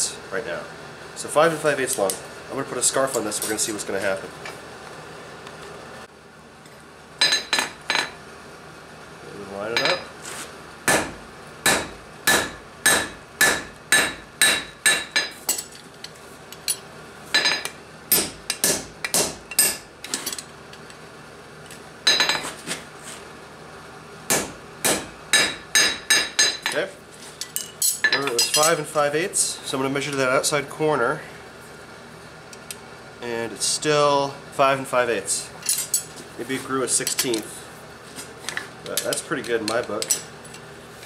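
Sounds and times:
hammer striking hot steel on anvil: 10.9 - 15.6, 17.4 - 19.9, 24.3 - 26.8.

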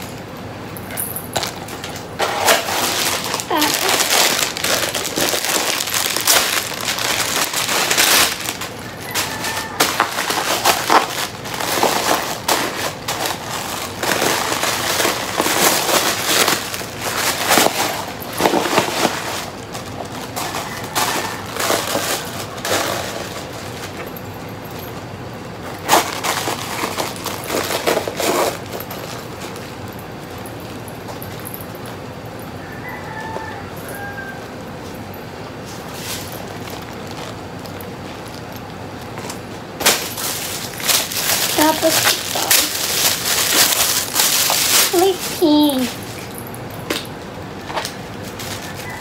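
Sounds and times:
plastic packaging crinkling: 1.1 - 31.6, 35.6 - 49.0.

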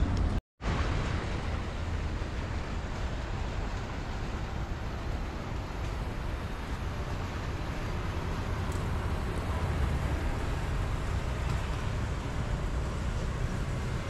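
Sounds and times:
distant road traffic rumble: 0.0 - 14.0.

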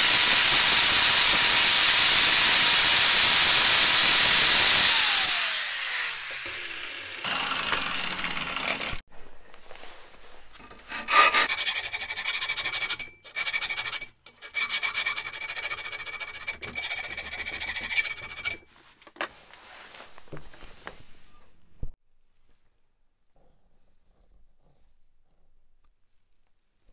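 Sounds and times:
angle grinder winding down: 0.0 - 9.0
hand file scraping metal: 10.5 - 18.7.

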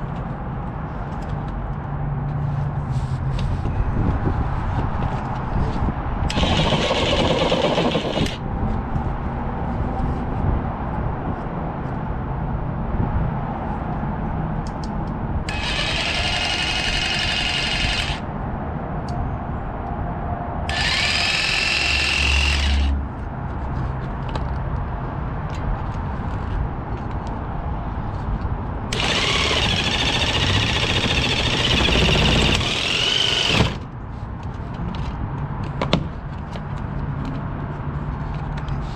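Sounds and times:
power tool cutting plastic: 6.3 - 8.4, 15.5 - 18.2, 20.7 - 23.0, 28.9 - 33.8.

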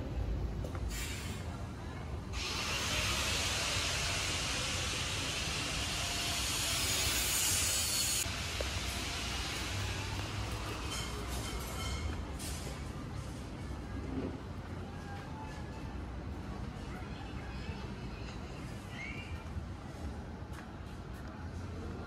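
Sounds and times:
low street rumble: 0.0 - 22.0
steady hiss: 2.4 - 10.8.

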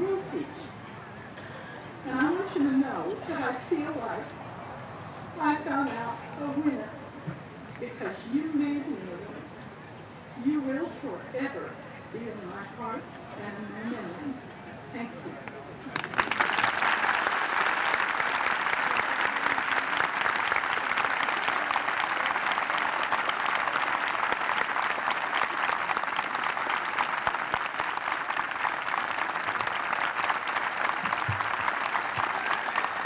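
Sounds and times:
audience applauding: 15.9 - 33.0.

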